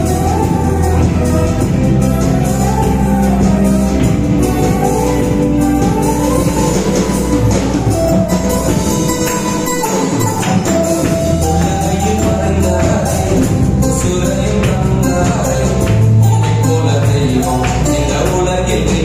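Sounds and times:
worship song music with beat: 0.0s - 19.0s
man singing into microphone: 9.8s - 19.0s.

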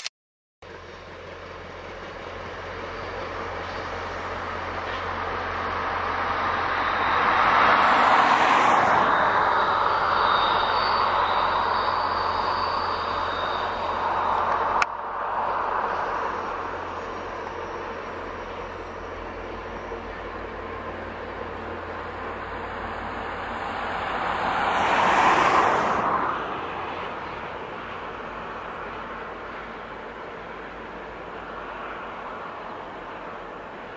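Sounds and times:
train wheels rumbling on rail: 0.6s - 33.9s
faint high steady tone: 8.7s - 23.3s.

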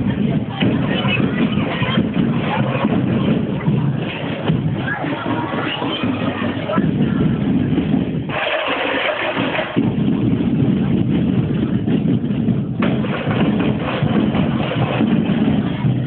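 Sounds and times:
crowd noise: 0.0s - 16.0s
parade music: 0.0s - 16.0s.

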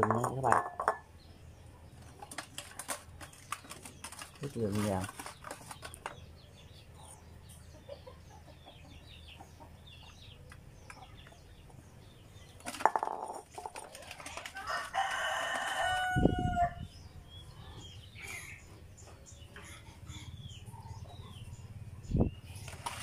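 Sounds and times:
rooster crowing: 14.6s - 16.8s.

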